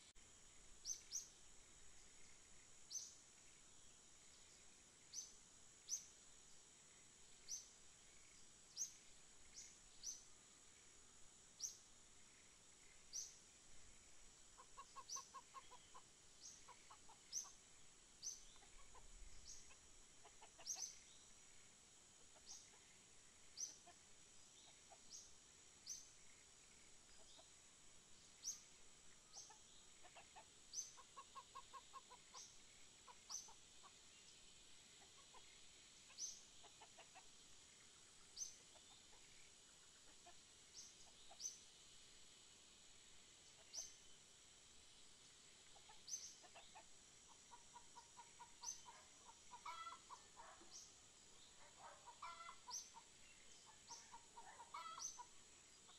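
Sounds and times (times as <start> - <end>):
chickens clucking: 14.5 - 17.6, 18.5 - 21.0, 23.6 - 25.1, 29.4 - 34.0, 35.0 - 37.4, 40.0 - 40.4, 45.7 - 50.8, 51.5 - 55.9.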